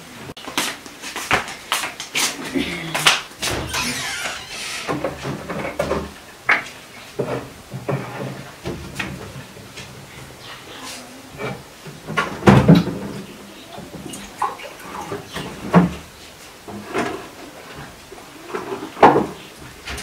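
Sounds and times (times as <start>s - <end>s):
knocks and clatters on shelves: 0.4s - 10.4s, 11.3s - 20.0s
cabinet being opened: 3.4s - 9.8s.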